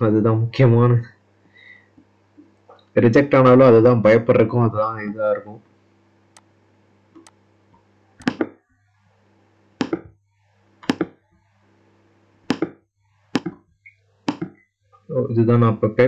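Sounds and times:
computer mouse clicks: 7.2 - 7.4.

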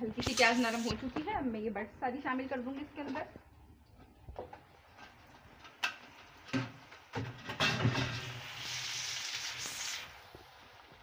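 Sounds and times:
food sizzling in hot oil: 0.0 - 1.1, 4.9 - 11.0.

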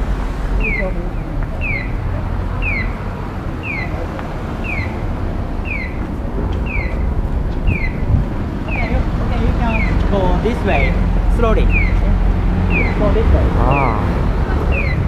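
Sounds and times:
bird chirping: 1.6 - 2.0, 2.6 - 3.0, 4.6 - 8.1, 11.6 - 12.1, 12.7 - 13.1.

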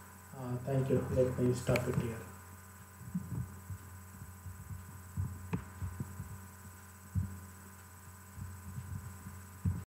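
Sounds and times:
electrical hum: 0.0 - 9.9
soft low thumps: 2.7 - 9.9.

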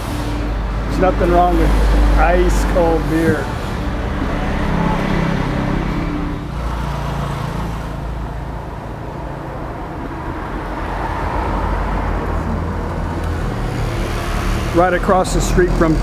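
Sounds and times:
traffic hum: 0.0 - 16.0
vehicle engine running: 0.0 - 16.0.

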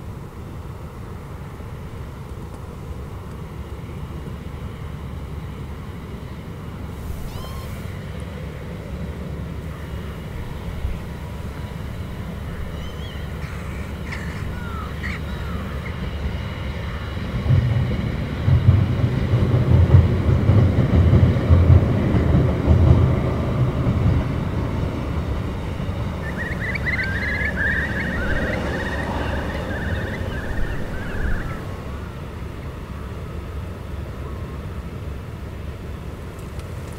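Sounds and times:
diesel train rumbling past: 0.0 - 36.9
short bird calls: 7.1 - 8.0, 12.4 - 16.2, 26.2 - 31.7
bird chattering: 7.2 - 7.8, 12.3 - 16.4, 26.2 - 31.7.

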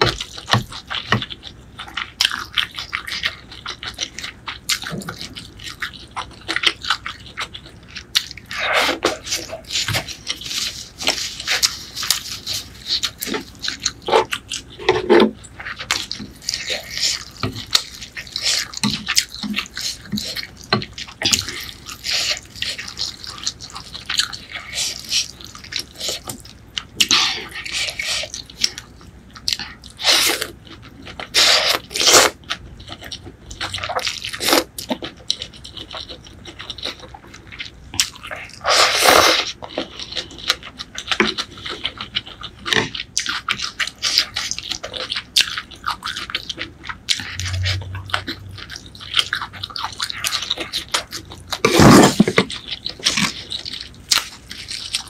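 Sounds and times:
chewing: 0.0 - 55.0
slurping noodles: 31.3 - 32.4, 38.6 - 39.6, 51.6 - 52.4.

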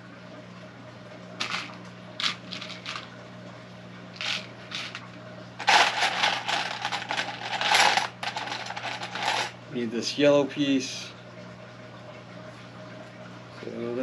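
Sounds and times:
plastic pieces rattling in a dish: 1.4 - 3.1, 4.2 - 9.6.

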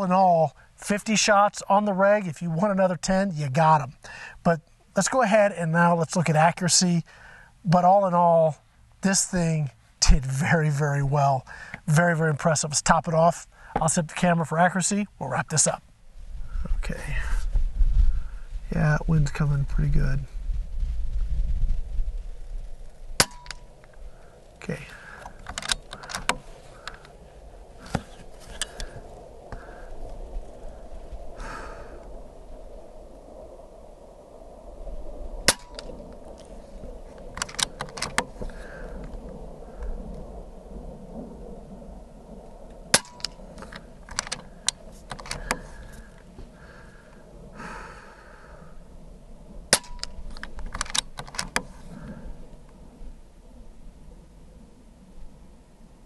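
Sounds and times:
wind rumbling on microphone: 0.0 - 56.0
breathy rush of noise: 3.9 - 4.8, 7.0 - 7.7, 11.4 - 11.9, 13.4 - 13.8, 15.9 - 18.8, 19.8 - 50.4, 51.6 - 56.0
air rifle shot crack: 23.2 - 23.7, 35.4 - 36.0, 42.9 - 43.4, 49.7 - 50.2
rifle action clicks: 25.2 - 27.1, 37.4 - 38.3, 43.0 - 45.6, 49.8 - 51.7.

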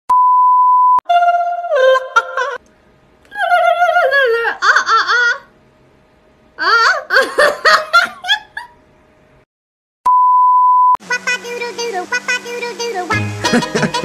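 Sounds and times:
music: 11.4 - 14.0
people laughing: 13.4 - 14.0.

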